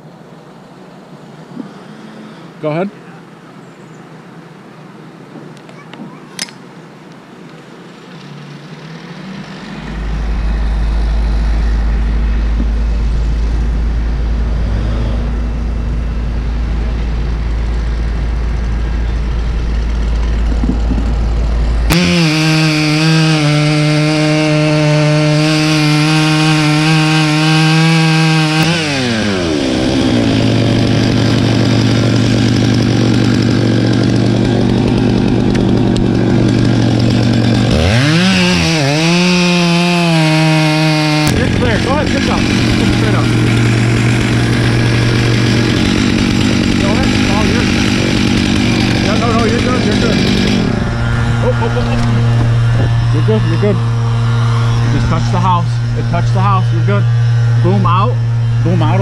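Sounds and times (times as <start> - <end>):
low steady rumble: 8.0 - 22.2, 41.2 - 59.0
chainsaw revving and cutting: 8.1 - 59.0.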